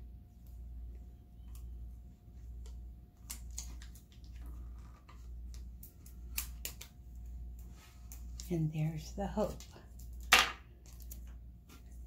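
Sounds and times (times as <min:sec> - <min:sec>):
tape ticks and crackles: 0:02.6 - 0:08.5.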